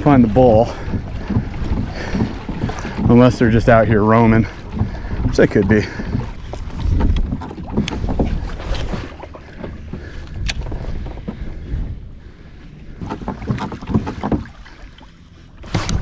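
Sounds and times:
wind buffeting microphone: 0.0 - 14.6
water lapping against kayak: 0.0 - 16.0
sharp clicks and knocks: 4.7 - 11.4, 13.0 - 14.5.

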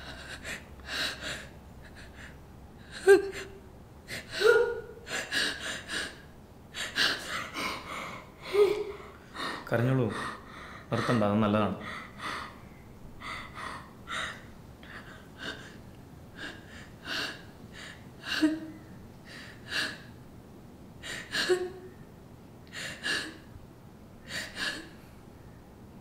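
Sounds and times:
woman sobbing: 0.0 - 6.2, 6.8 - 12.6, 16.4 - 20.1, 21.0 - 21.9.

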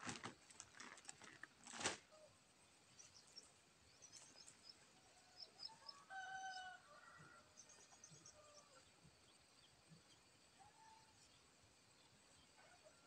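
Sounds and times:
small birds chirping: 2.2 - 6.7
rooster crowing: 5.6 - 7.5.

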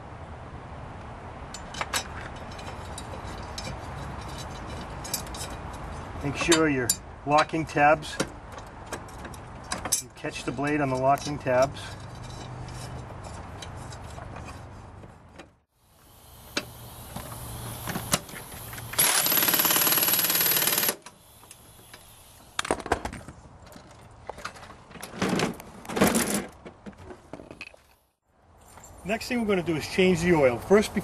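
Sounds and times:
parts knocking and clattering: 1.5 - 15.6, 22.6 - 27.9
air impact wrench hammering: 16.0 - 22.5.

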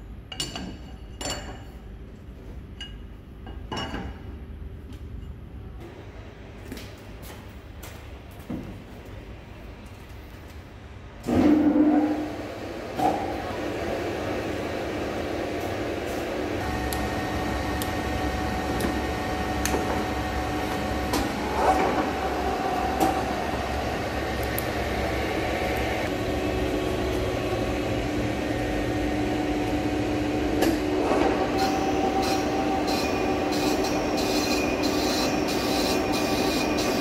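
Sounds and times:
lathe humming: 13.6 - 37.0
high-pitched metal cutting scrape: 31.6 - 37.0.

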